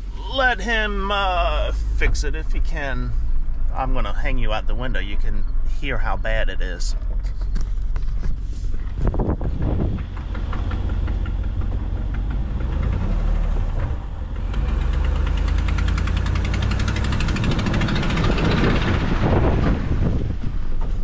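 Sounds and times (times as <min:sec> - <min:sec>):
pickup engine running: 0:00.0 - 0:06.0, 0:06.9 - 0:20.8
exhaust leak ticking: 0:08.8 - 0:19.0.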